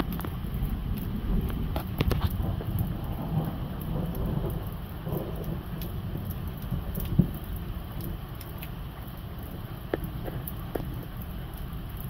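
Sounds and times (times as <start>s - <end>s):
thunder rumbling: 0.0s - 8.3s
raindrop ticks: 0.0s - 12.0s.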